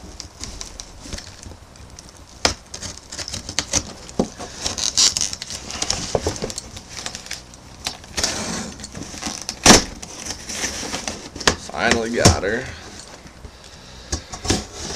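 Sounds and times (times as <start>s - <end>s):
metal tool scraping cardboard box: 8.1s - 11.7s, 14.4s - 14.9s
sharp crack: 9.3s - 10.1s.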